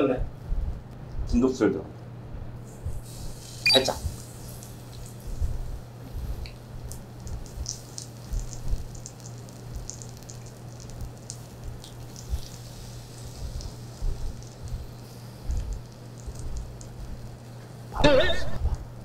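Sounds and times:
meat sizzling on a griddle: 3.0 - 5.1, 7.4 - 17.8
fat crackling and popping: 3.4 - 18.0.

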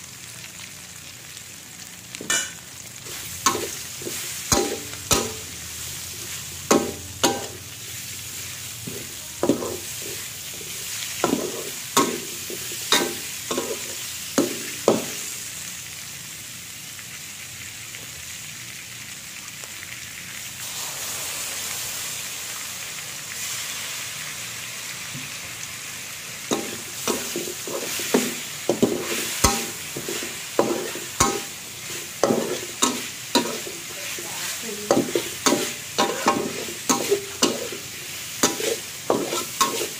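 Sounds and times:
food sizzling in a wok: 0.0 - 39.9
metal spatula scraping and clanking: 2.3 - 5.5, 6.2 - 7.6, 8.8 - 15.2, 26.5 - 34.0, 34.9 - 39.9.

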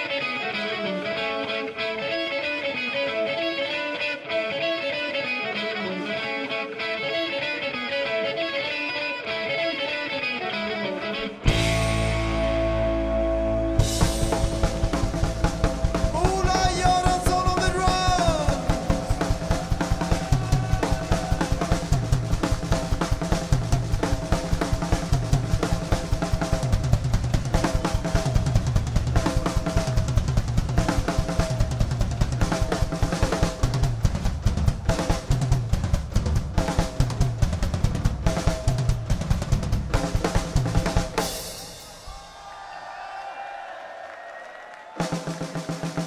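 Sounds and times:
rock drum kit playing: 11.3 - 42.6, 45.0 - 46.0.

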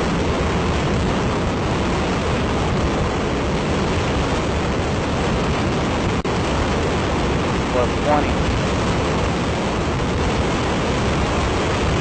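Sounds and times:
rocket motor roaring: 6.7 - 12.0.

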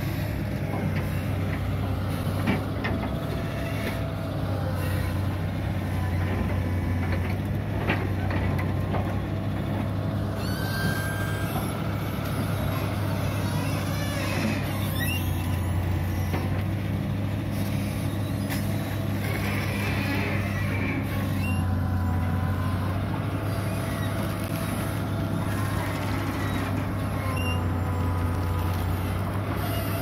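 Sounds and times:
excavator diesel engine humming: 0.0 - 30.0.

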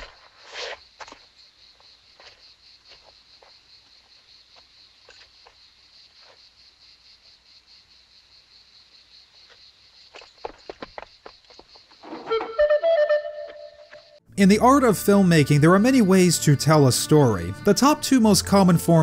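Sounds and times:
crickets chirping: 0.0 - 14.2.

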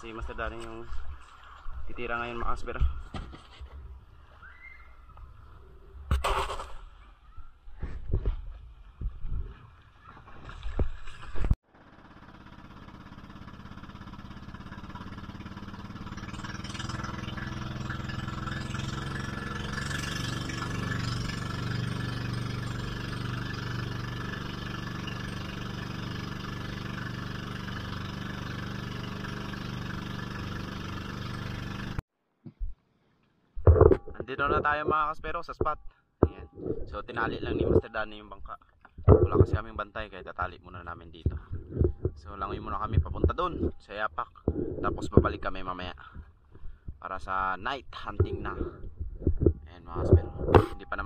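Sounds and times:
boat engine running: 11.6 - 32.0, 39.0 - 47.0, 47.8 - 51.0.

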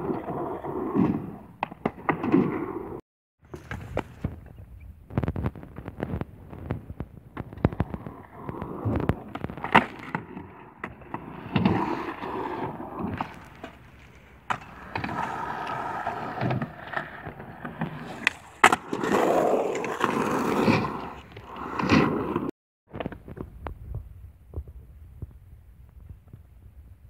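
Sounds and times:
skateboard wheels rolling: 0.0 - 24.8
skateboard clacking on ground: 5.2 - 23.6.

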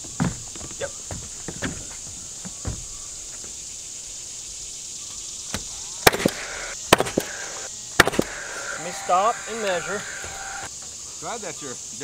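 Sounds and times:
nail gun shots: 6.0 - 8.5.

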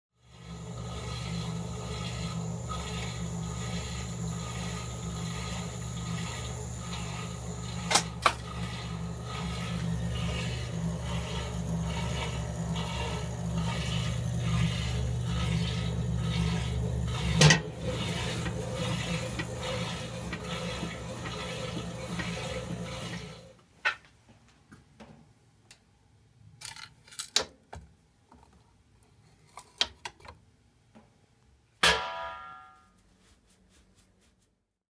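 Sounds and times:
washing machine motor hum: 0.2 - 23.6.

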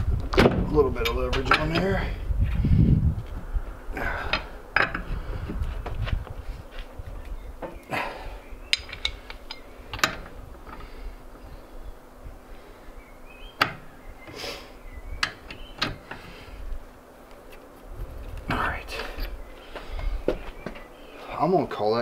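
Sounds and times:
wind rumble on microphone: 0.0 - 14.2, 17.8 - 20.8.

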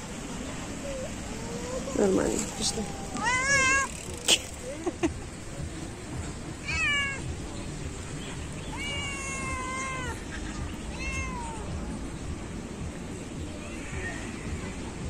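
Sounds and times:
cat meowing: 0.9 - 3.9, 6.6 - 7.3, 8.6 - 11.8.

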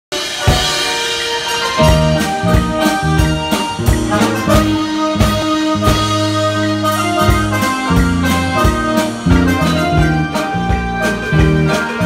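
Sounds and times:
drum beat: 0.1 - 12.0
keyboard melody: 0.1 - 12.0.

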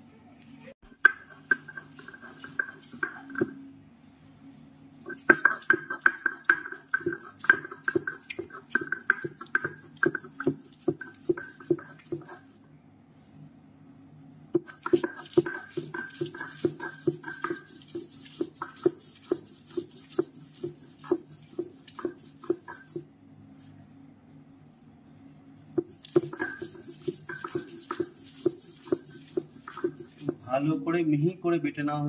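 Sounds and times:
knocks of hand grinding: 1.0 - 3.6, 5.1 - 12.5, 14.6 - 23.0, 25.8 - 30.5.

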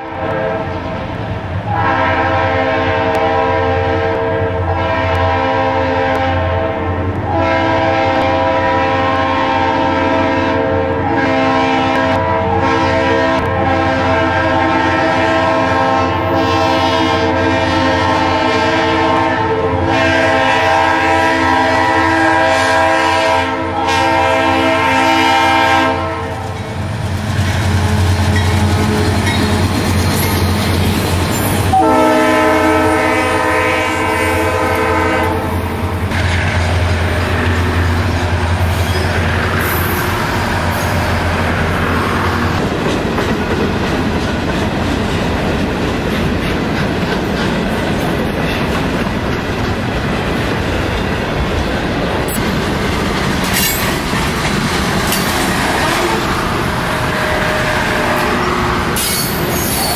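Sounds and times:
train horn blasts: 0.0 - 1.0, 1.6 - 26.6, 31.7 - 42.6, 55.5 - 59.9.

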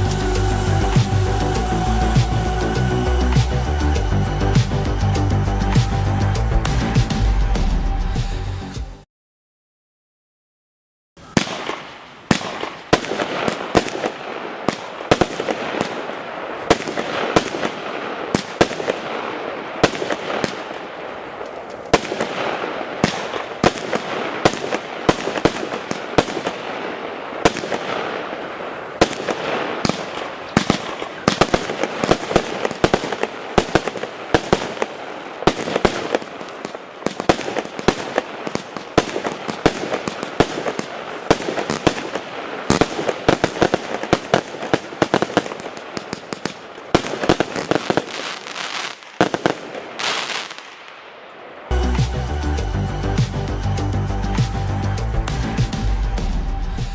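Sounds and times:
firework hiss and crackle: 0.0 - 7.2, 11.2 - 56.9
firework bangs: 11.2 - 52.1.

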